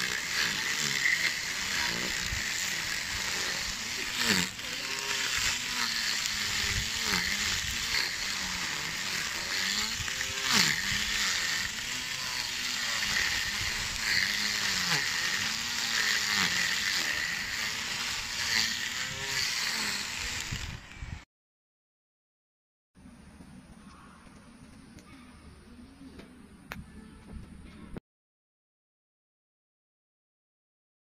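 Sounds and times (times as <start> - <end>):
electric grass trimmer running: 0.0 - 21.2.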